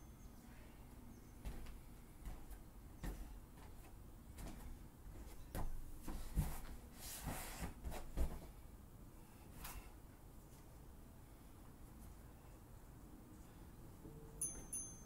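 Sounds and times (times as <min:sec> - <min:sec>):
sneakers stepping on foam mat: 0:01.4 - 0:08.5.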